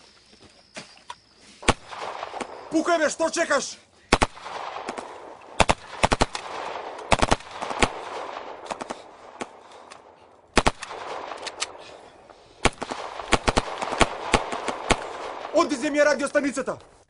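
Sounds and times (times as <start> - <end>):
gunfire with echo: 1.6 - 2.7, 4.1 - 12.0, 12.6 - 15.9.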